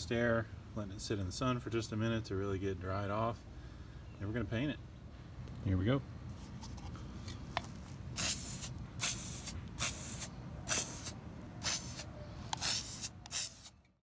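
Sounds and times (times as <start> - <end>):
aerosol can spraying: 8.2 - 13.7.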